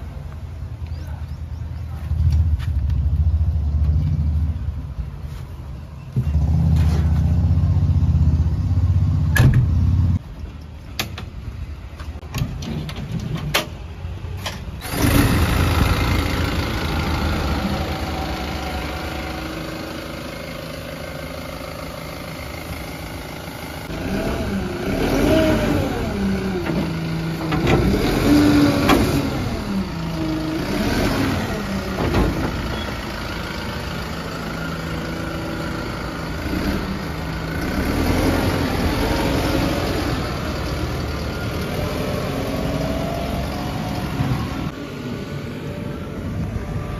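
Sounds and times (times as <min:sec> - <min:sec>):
diesel engine starter cranking: 0:13.5 - 0:19.3
diesel engine idling: 0:13.9 - 0:46.9.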